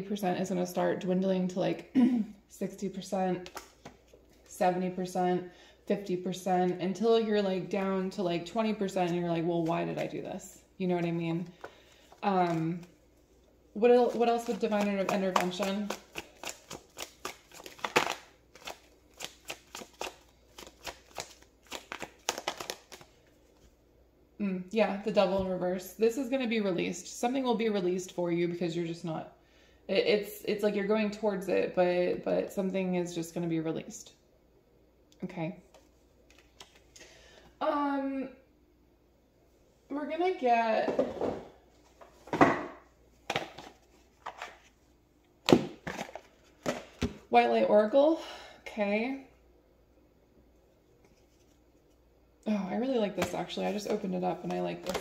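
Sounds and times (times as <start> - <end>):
cards being shuffled: 11.6 - 13.0, 14.0 - 23.7, 35.7 - 37.0, 43.3 - 44.8.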